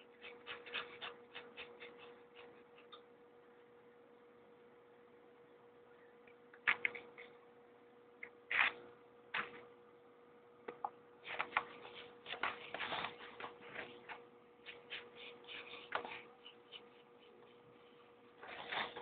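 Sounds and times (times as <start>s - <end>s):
pencil scratching on paper: 0.0s - 3.0s, 11.3s - 19.0s
faint steady hum: 0.0s - 19.0s.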